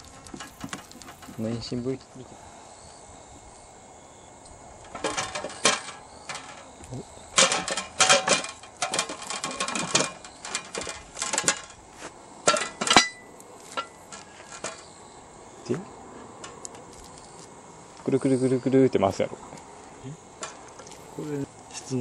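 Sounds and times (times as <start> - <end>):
steel parts clinking and clanking: 4.8 - 11.8, 12.4 - 14.9
sharp metallic knocks: 7.3 - 11.8, 12.4 - 14.9.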